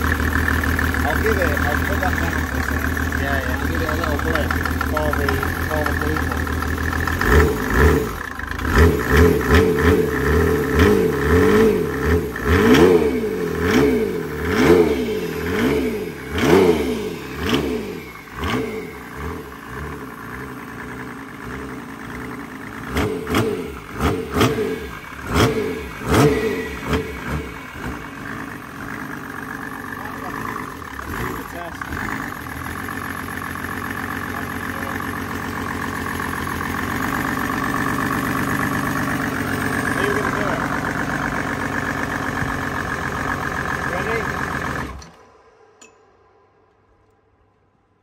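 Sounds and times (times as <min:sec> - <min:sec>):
diesel engine revving in blips: 0:07.1 - 0:20.1, 0:22.8 - 0:28.3.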